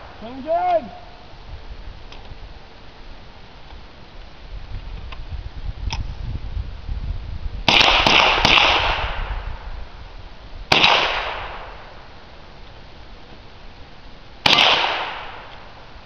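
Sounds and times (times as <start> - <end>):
gunshots echoing: 7.7 - 9.2, 10.7 - 11.9, 14.4 - 15.6.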